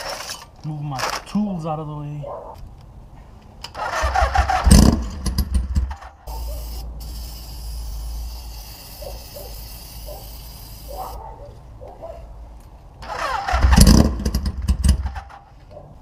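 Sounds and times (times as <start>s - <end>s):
motorcycle engine cranking: 3.6s - 6.2s, 13.0s - 15.5s
aerosol can spraying: 6.3s - 11.2s.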